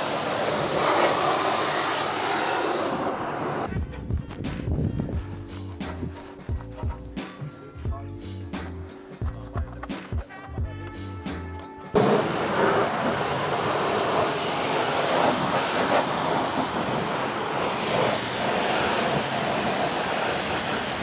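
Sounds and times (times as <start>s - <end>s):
pressure washer spraying water: 0.0s - 3.7s, 12.0s - 21.0s.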